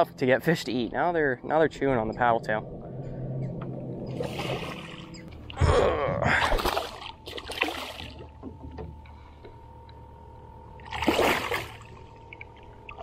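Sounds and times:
fish thrashing and splashing in water: 6.4 - 8.3, 10.8 - 13.0.

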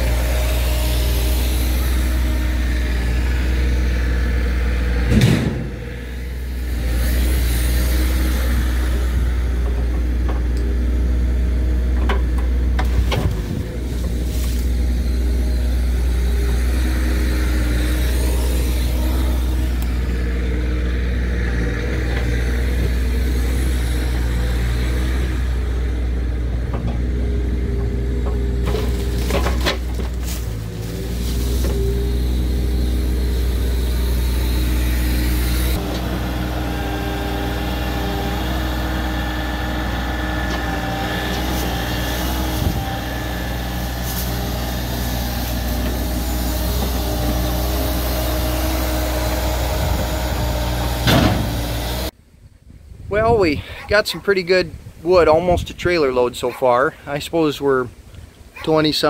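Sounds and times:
excavator diesel engine running: 0.0 - 52.2
heavy thump: 5.0 - 5.9, 51.0 - 51.7.

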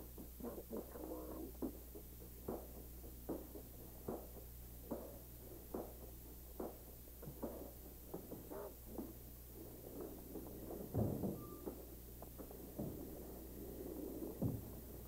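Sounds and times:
steady low hum: 0.0 - 15.0
footsteps on hard floor: 14.3 - 14.8.

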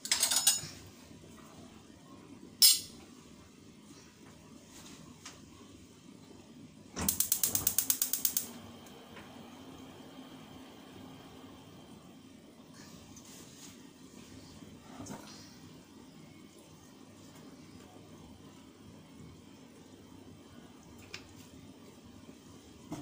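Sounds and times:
gas stove igniter clicking: 7.0 - 8.6.

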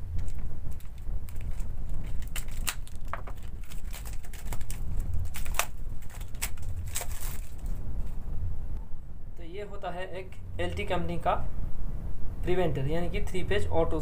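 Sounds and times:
plastic wrapping crinkling: 0.0 - 8.1.

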